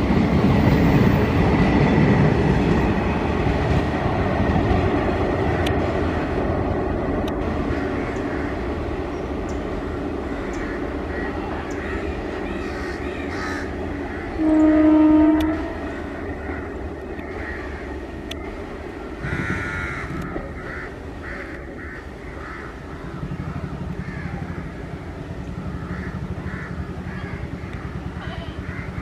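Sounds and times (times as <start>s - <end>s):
train rumbling: 0.0s - 29.0s
crows cawing: 7.6s - 8.7s, 10.3s - 14.4s, 15.8s - 18.0s, 19.2s - 23.3s, 23.9s - 24.9s, 25.6s - 29.0s
locomotive horn blast: 14.2s - 16.2s.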